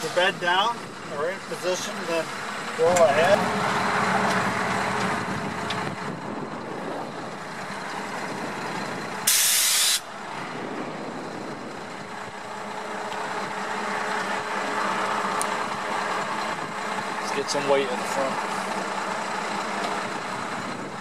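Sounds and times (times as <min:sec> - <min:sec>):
truck engine running: 0:00.0 - 0:21.0
air brake hiss: 0:09.3 - 0:10.1.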